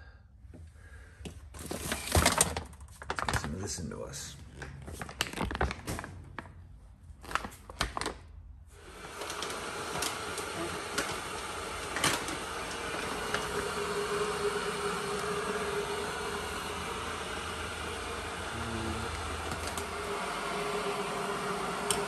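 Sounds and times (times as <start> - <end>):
coffee bag and containers handled: 1.6 - 3.8, 4.5 - 6.5, 7.2 - 8.2, 8.8 - 16.3, 19.0 - 21.4.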